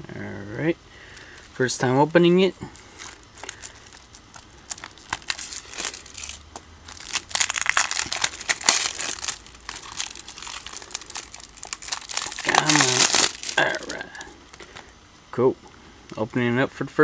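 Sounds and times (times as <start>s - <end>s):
plastic shrink wrap crinkling: 2.6s - 14.9s.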